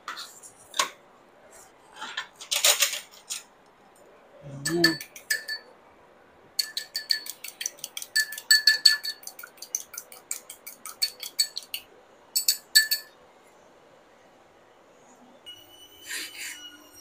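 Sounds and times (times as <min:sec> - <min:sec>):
chopsticks clinking in a ceramic bowl: 0:04.6 - 0:05.7, 0:06.6 - 0:11.8, 0:12.4 - 0:13.2.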